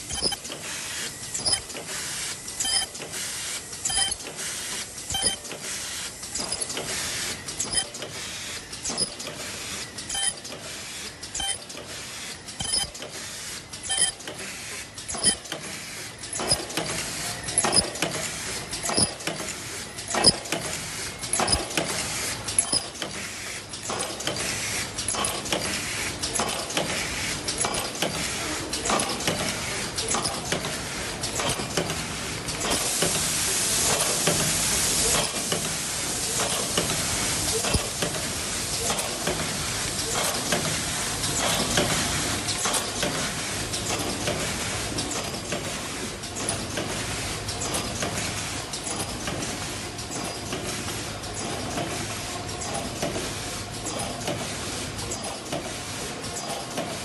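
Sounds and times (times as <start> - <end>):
sharp machine clicks: 0.0 - 0.7, 1.3 - 28.2, 28.8 - 31.9
machine clattering: 0.0 - 3.1, 3.8 - 8.2, 11.2 - 33.2
hiss: 32.8 - 38.9.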